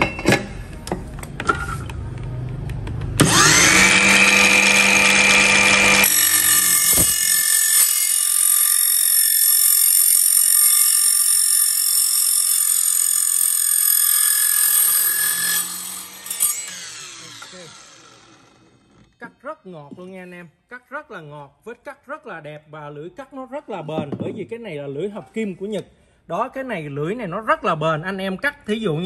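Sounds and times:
mitre saw cutting steel: 3.2s - 19.1s.

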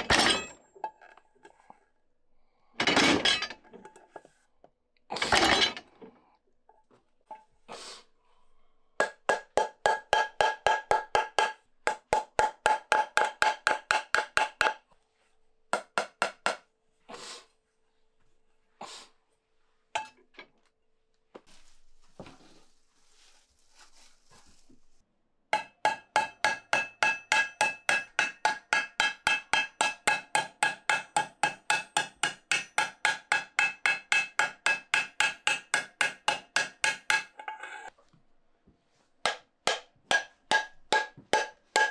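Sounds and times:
hammer striking metal pan: 9.0s - 14.8s, 25.6s - 37.4s, 39.3s - 41.9s.

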